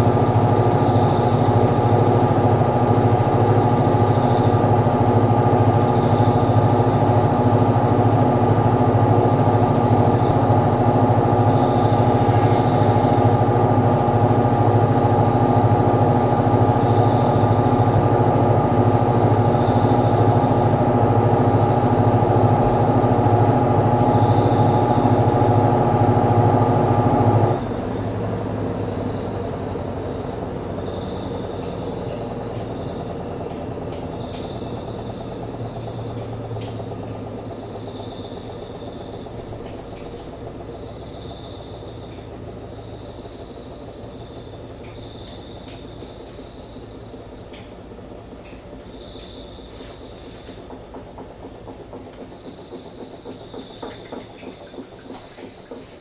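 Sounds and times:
washing machine spinning: 0.0s - 56.0s.

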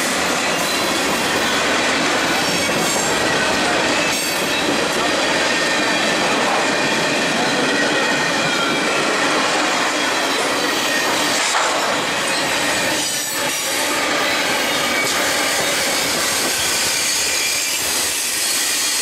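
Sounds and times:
train wheels rumbling on rail: 0.0s - 19.0s
high wheel squeal: 2.4s - 19.0s.

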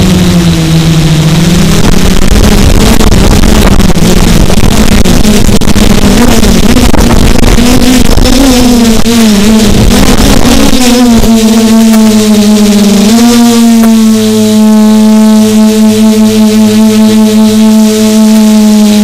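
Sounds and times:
quadcopter motors buzzing: 0.0s - 19.0s.

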